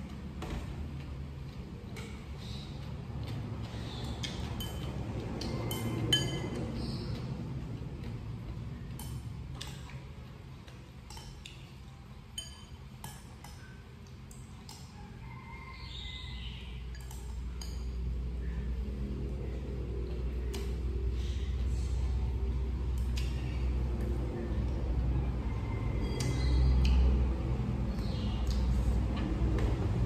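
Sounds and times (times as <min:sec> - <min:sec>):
chopsticks clinking on ceramic bowls: 0:04.3 - 0:06.7, 0:12.3 - 0:13.6, 0:16.9 - 0:18.1.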